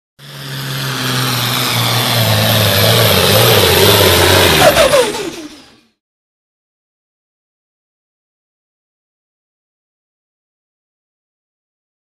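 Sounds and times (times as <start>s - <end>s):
tractor diesel engine running hard: 0.2s - 6.0s.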